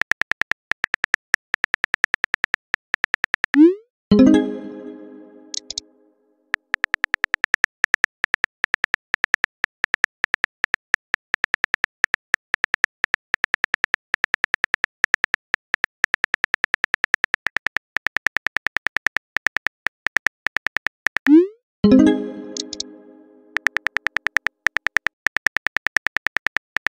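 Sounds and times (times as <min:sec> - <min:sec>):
smartphone keyboard typing clicks: 0:05.5 - 0:05.8, 0:22.5 - 0:22.9, 0:23.5 - 0:26.9.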